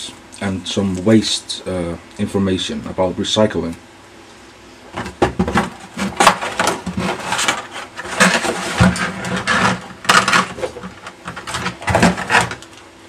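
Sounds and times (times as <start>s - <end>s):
cardboard box rustling and scraping: 5.5s - 12.6s.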